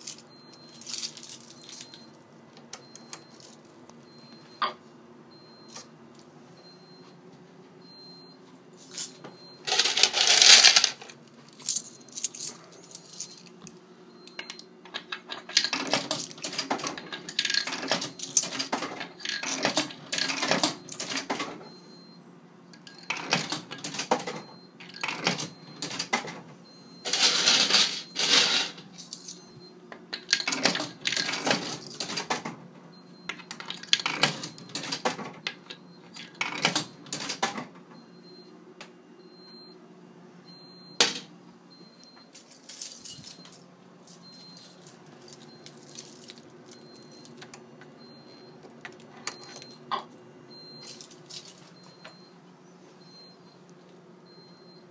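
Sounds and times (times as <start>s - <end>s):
coins clattering: 0.0s - 2.1s, 2.9s - 3.7s, 8.8s - 21.6s, 22.8s - 26.4s, 27.0s - 29.5s, 30.1s - 32.5s, 33.3s - 37.5s, 42.3s - 47.5s, 50.6s - 52.0s
coins clinking in machine: 0.0s - 4.6s, 8.8s - 22.2s, 22.8s - 32.6s, 33.2s - 38.4s, 40.5s - 52.3s.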